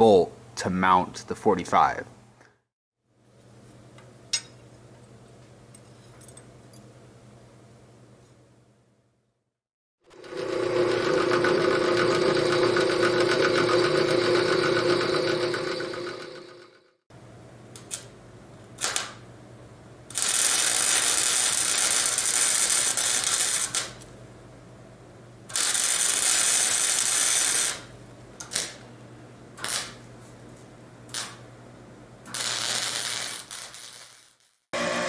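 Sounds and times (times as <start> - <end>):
welder arc crackling: 18.8 - 19.2, 20.1 - 24.1, 25.5 - 28.8, 29.6 - 30.0, 31.1 - 31.4, 32.3 - 34.7.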